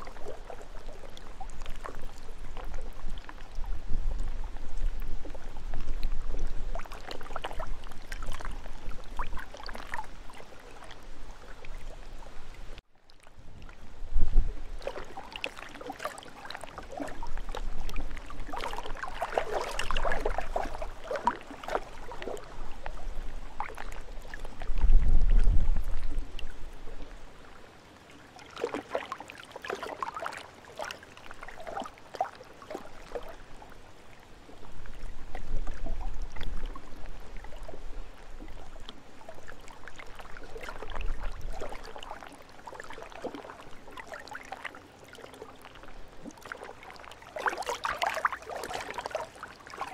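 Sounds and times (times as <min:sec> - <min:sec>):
wind rumbling on microphone: 0:00.0 - 0:15.4, 0:16.5 - 0:27.7, 0:32.8 - 0:42.3
waves splashing and lapping: 0:00.0 - 0:49.9.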